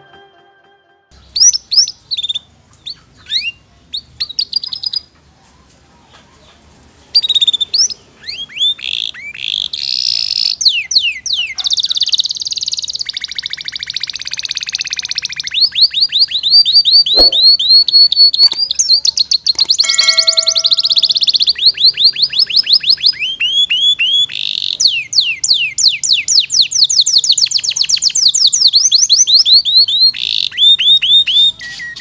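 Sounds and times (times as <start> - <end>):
canary singing: 7.2 - 32.0.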